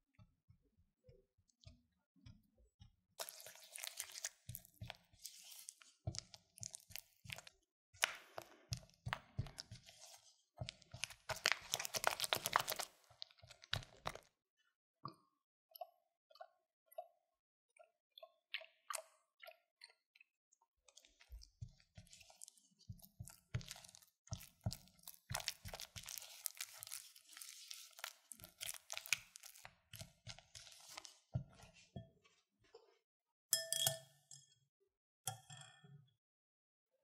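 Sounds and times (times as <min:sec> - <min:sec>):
spatula squelching and scraping bowl: 0:02.2 - 0:14.3, 0:20.8 - 0:32.8.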